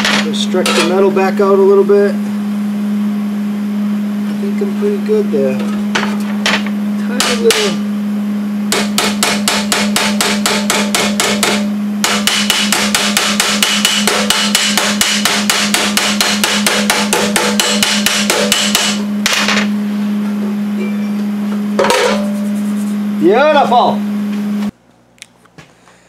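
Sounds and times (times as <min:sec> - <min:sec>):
hammer striking sheet steel: 0:07.2 - 0:07.8, 0:08.7 - 0:19.7, 0:21.8 - 0:22.4.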